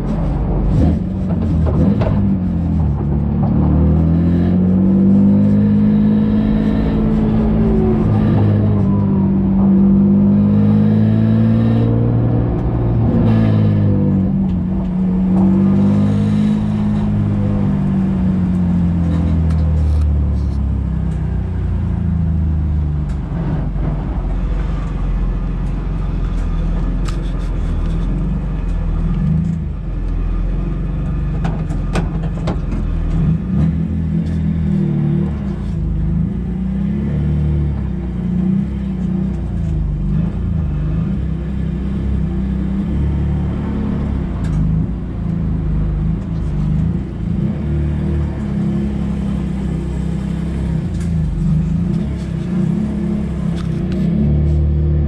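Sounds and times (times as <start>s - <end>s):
race car engine: 0.0s - 55.0s.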